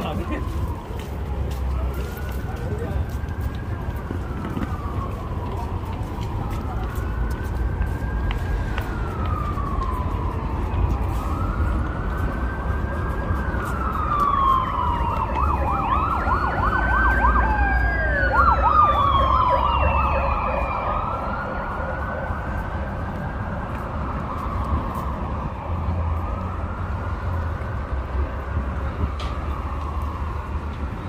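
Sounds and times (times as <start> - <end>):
low traffic rumble: 0.0 - 31.0
siren wailing and yelping: 1.9 - 27.7.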